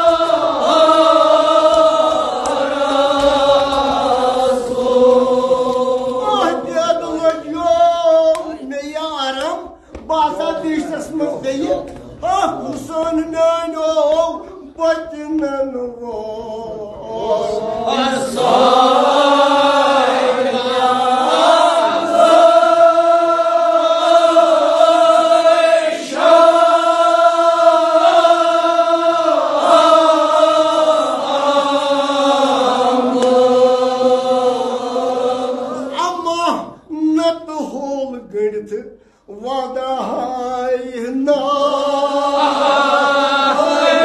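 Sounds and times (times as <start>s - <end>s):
men chanting together: 0.0s - 8.0s, 15.6s - 36.8s, 39.9s - 44.0s.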